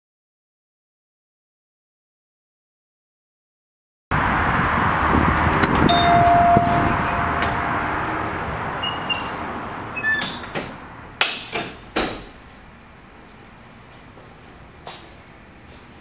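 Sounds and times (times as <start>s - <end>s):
outside traffic noise: 4.1s - 16.0s
glass door closing: 5.8s - 12.4s
door knocks and clicks: 10.2s - 12.3s.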